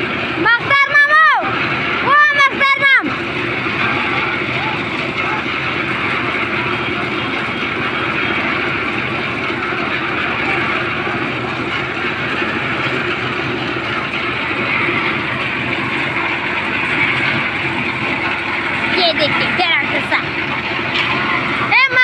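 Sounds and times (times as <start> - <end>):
concrete mixer running: 0.0 - 22.0.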